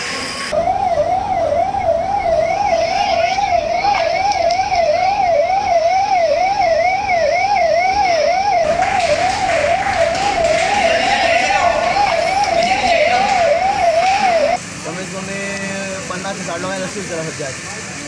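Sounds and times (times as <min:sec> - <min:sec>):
emergency vehicle siren wailing: 0:00.5 - 0:14.6.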